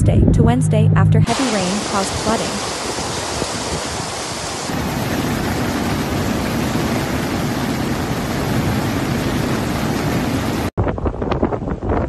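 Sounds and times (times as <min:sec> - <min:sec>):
floodwater rushing over rocks: 0:01.3 - 0:10.7.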